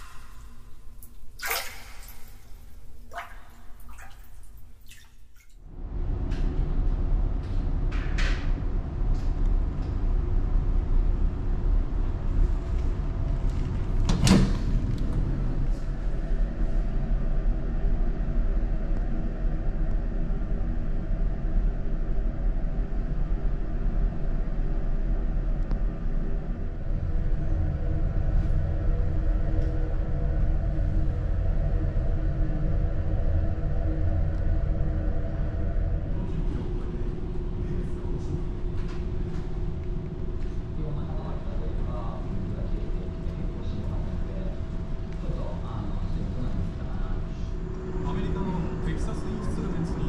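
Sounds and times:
ship engines rumbling: 0:00.0 - 0:04.8, 0:29.9 - 0:50.0.

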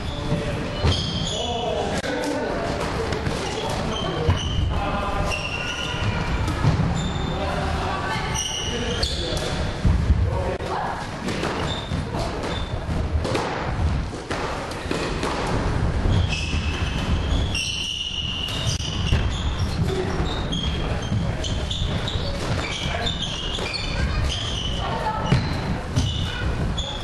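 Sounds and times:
sneakers squeaking on wooden floor: 0:00.0 - 0:01.8, 0:03.3 - 0:07.5, 0:08.2 - 0:09.9, 0:11.3 - 0:12.9, 0:16.1 - 0:27.0.

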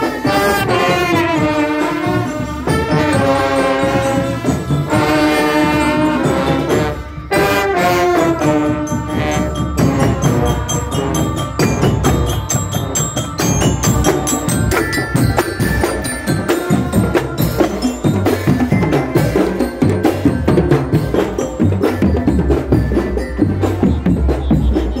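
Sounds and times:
bass drums: 0:00.0 - 0:25.0
snare drums: 0:00.0 - 0:25.0.

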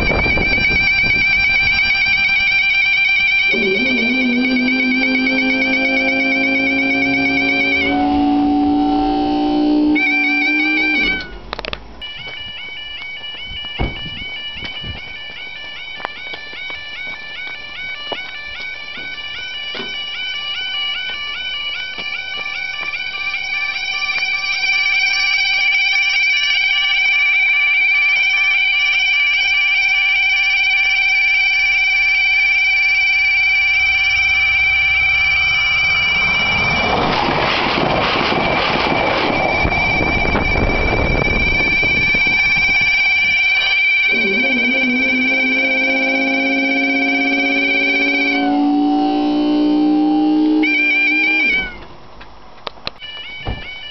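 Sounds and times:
level crossing two-tone alarm: 0:00.0 - 0:51.9, 0:53.0 - 0:53.9
lower alarm tone: 0:00.0 - 0:52.0, 0:53.0 - 0:53.9
train passing with low rumble: 0:33.8 - 0:49.0.

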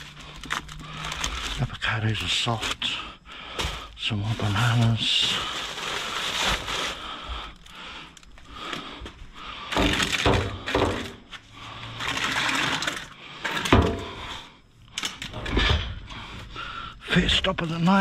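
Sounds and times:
bags and boxes rustling: 0:00.0 - 0:08.8.

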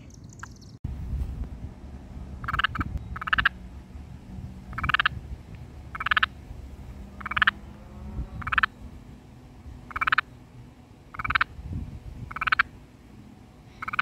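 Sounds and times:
toad croaking: 0:02.4 - 0:03.6, 0:04.7 - 0:05.2, 0:05.9 - 0:06.3, 0:07.2 - 0:07.6, 0:08.4 - 0:08.7, 0:09.9 - 0:10.3, 0:11.1 - 0:11.5, 0:12.3 - 0:12.7, 0:13.8 - 0:14.0.

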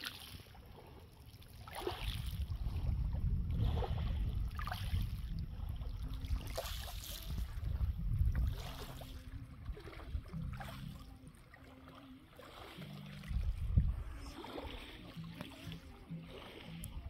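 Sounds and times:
small waves lapping on pebbles: 0:00.0 - 0:17.0
wind gusting on microphone: 0:02.1 - 0:06.6, 0:07.2 - 0:10.5, 0:13.3 - 0:14.8.

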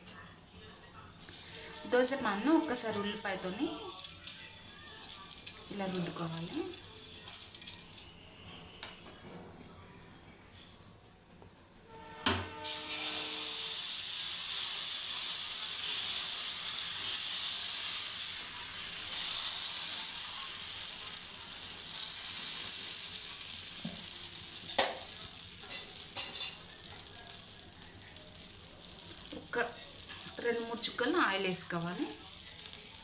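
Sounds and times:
batter sizzling on hot pan: 0:00.9 - 0:07.6, 0:12.6 - 0:33.0
metal clink with ringing: 0:01.6 - 0:11.4.

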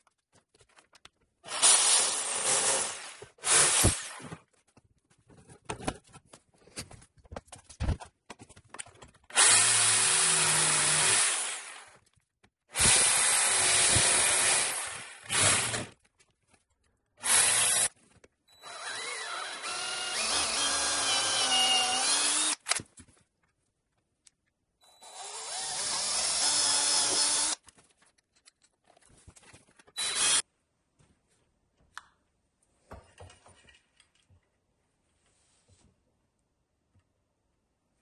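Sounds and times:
cordless drill running: 0:09.4 - 0:11.8, 0:17.2 - 0:17.9, 0:18.6 - 0:22.7, 0:25.0 - 0:27.6, 0:30.0 - 0:30.4
faint clicks and handling: 0:27.6 - 0:30.0.

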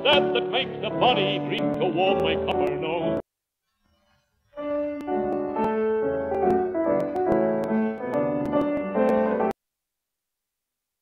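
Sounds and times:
old record instrumental music: 0:00.0 - 0:03.2, 0:04.6 - 0:09.5
record surface clicks: 0:05.0 - 0:09.5.

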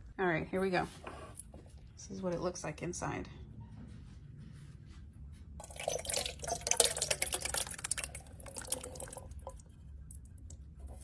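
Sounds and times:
soup pouring and splashing: 0:05.6 - 0:11.0.

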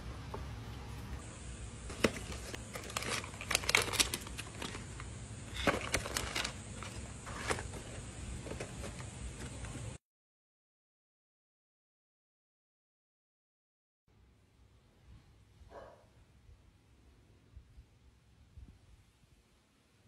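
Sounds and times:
low steady hum: 0:00.0 - 0:10.0
foil sachets crinkling: 0:01.9 - 0:09.1.

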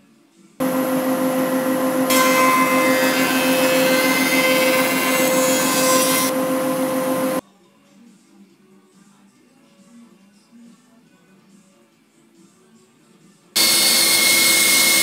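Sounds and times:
drum sander motor hum: 0:00.6 - 0:07.4, 0:13.6 - 0:15.0.

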